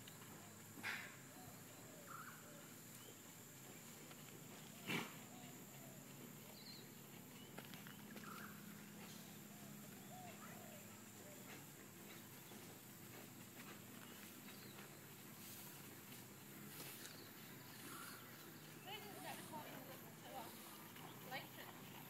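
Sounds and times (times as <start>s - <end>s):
bird chirps and calls: 6.5s - 11.4s, 16.8s - 21.3s.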